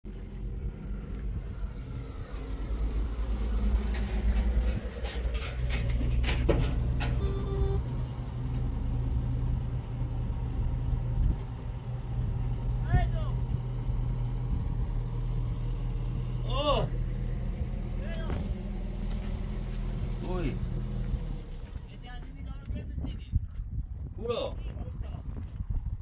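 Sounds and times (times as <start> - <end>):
motor engine running: 0.1 - 22.6
sharp clicks and knocks: 3.7 - 7.4.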